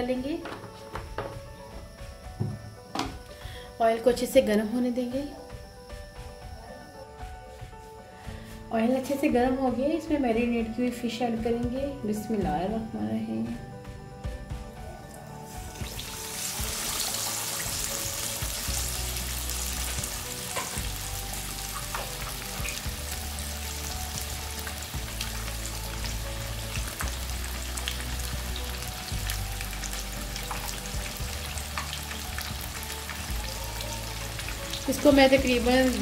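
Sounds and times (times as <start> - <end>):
fish sizzling in hot oil: 15.5 - 36.0
oil popping and crackling: 15.8 - 36.0.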